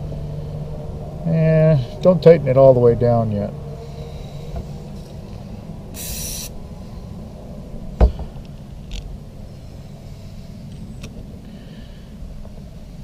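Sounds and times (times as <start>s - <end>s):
steady low rumble: 0.0s - 13.0s
short hiss: 6.0s - 6.6s.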